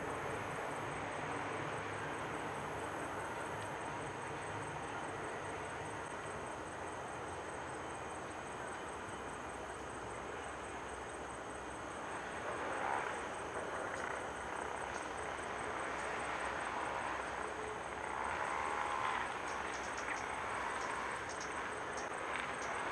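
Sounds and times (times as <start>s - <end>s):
high insect tone: 0.0s - 22.9s.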